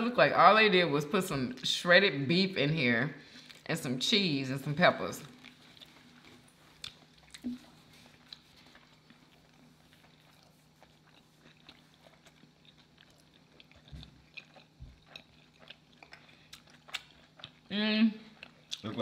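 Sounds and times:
faint steady hum: 0.0 - 19.0
chewing with wet mouth clicks: 5.2 - 17.7, 18.3 - 19.0.

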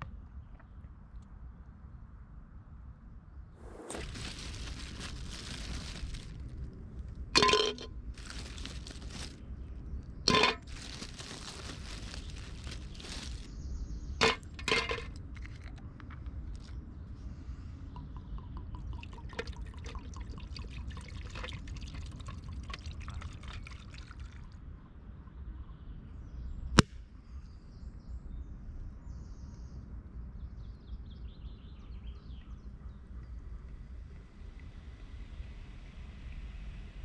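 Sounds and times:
liquid poured over ice: 3.9 - 6.3, 7.4 - 9.4, 18.0 - 24.4
ice clicking: 10.3 - 13.5.

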